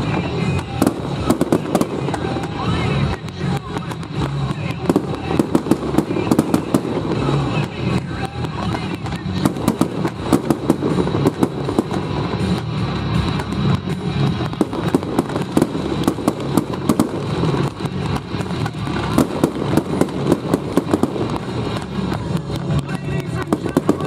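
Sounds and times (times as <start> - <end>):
fireworks bangs: 0.0 - 24.0
steady low rumble: 0.0 - 24.0.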